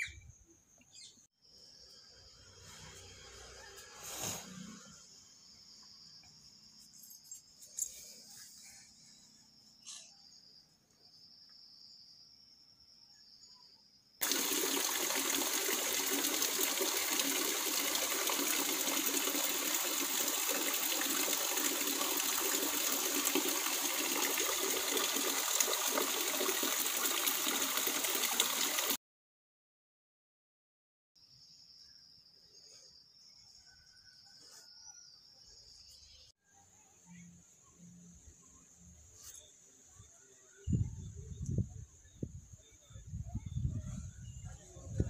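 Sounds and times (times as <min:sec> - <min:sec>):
faint crickets chirping: 0:00.0 - 0:27.2, 0:31.2 - 0:45.0
steady rain falling: 0:14.2 - 0:25.8.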